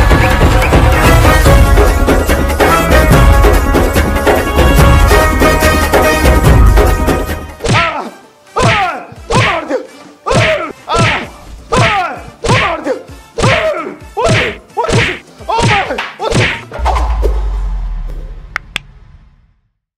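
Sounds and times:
wooden stick whacks: 7.6 - 7.9, 14.3 - 17.4.

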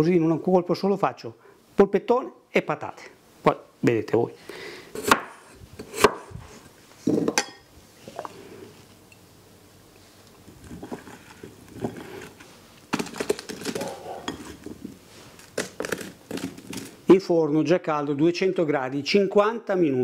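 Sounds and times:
knife chopping on wooden board: 5.0 - 6.3.

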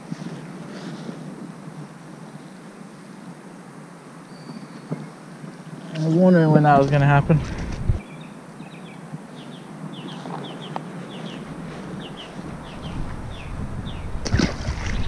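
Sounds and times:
bird chirping: 7.9 - 14.2
fish splashing into water: 14.2 - 15.0.

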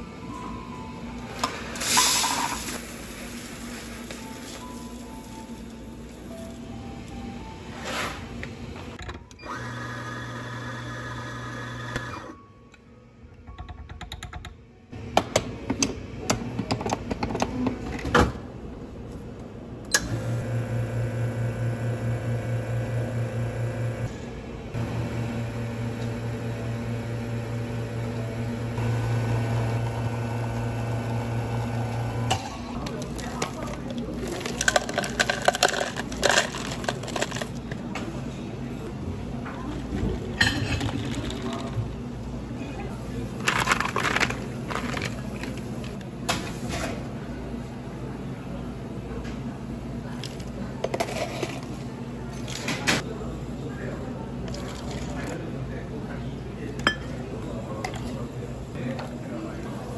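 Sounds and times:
espresso machine pump buzzing: 9.4 - 12.3, 20.0 - 24.1, 24.8 - 32.4
electric coffee grinder grinding: 9.5 - 12.3, 24.8 - 32.3.

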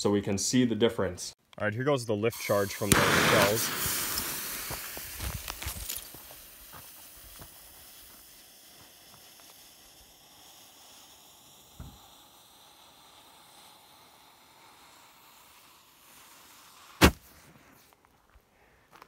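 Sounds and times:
fuse hissing and spitting sparks: 2.3 - 17.3
small pop: 17.0 - 17.3.

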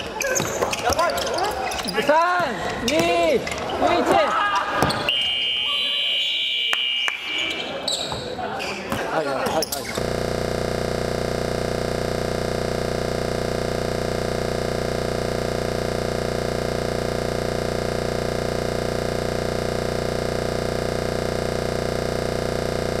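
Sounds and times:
steady electronic hum: 10.0 - 23.0.

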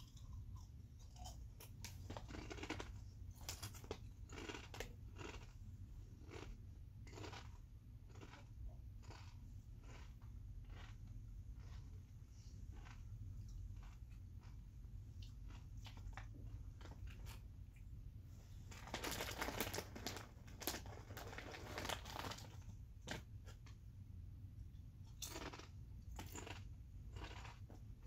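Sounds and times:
potato chips crunching: 0.0 - 11.8, 18.7 - 23.3, 25.1 - 27.7
chip bag crinkling: 1.6 - 5.5, 18.7 - 23.3, 25.2 - 27.6.

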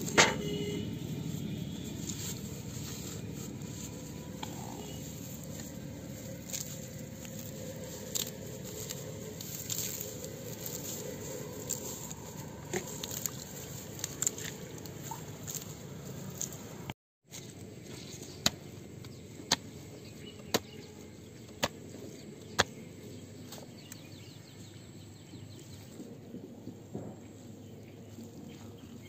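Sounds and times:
hands rustling grass and mud: 0.0 - 20.6
low outdoor background noise: 0.0 - 29.0.

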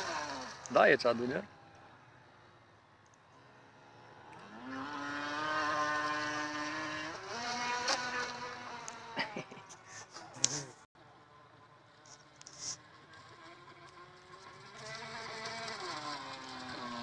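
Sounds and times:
toy speedboat motor buzzing: 0.0 - 1.4, 3.8 - 10.7, 11.9 - 17.0.

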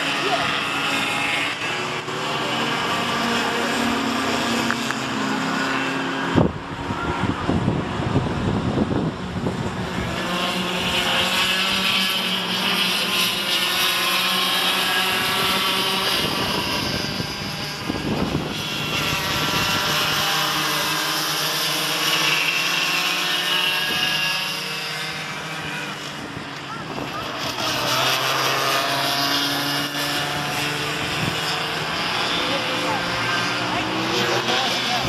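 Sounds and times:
go-kart engines buzzing: 0.0 - 35.0
wind buffeting microphone: 6.3 - 10.2, 15.1 - 20.2.

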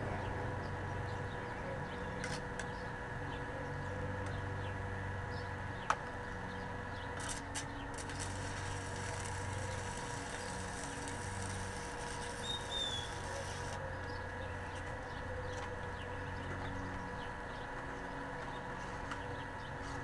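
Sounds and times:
welding arc crackling and hissing: 7.2 - 13.8.

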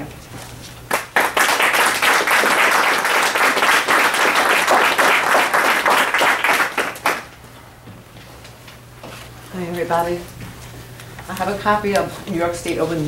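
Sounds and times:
audience applauding: 0.9 - 7.4.

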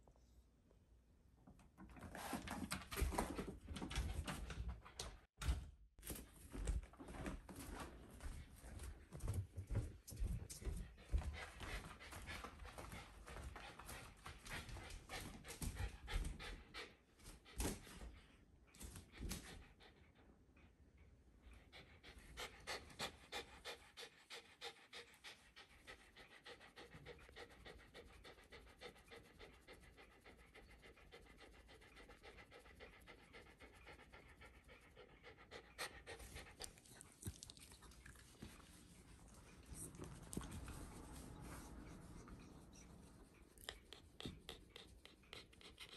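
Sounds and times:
dog panting: 8.2 - 45.9.

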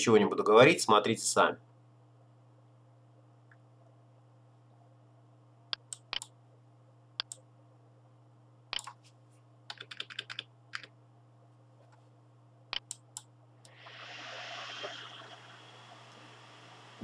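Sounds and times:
faint low hum: 0.0 - 17.0
mouse and keyboard clicks: 5.7 - 6.3, 7.2 - 7.4, 8.7 - 9.0, 12.7 - 13.3.

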